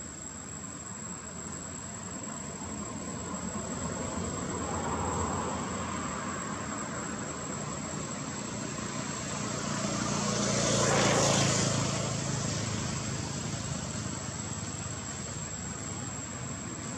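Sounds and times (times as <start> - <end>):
passing engine: 2.2 - 16.9.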